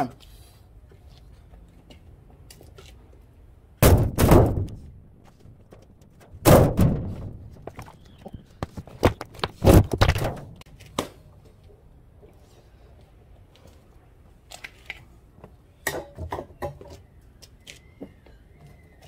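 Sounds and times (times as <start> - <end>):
heavy thuds on steel cabinet: 3.8 - 4.9, 6.2 - 7.6
sharp metal knocks: 3.8 - 4.9, 5.7 - 7.7.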